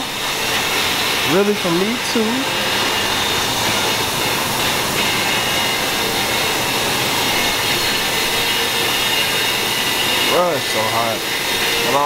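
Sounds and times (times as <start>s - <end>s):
faint high whine: 0.0s - 12.0s
machinery air rushing hiss: 0.0s - 12.0s.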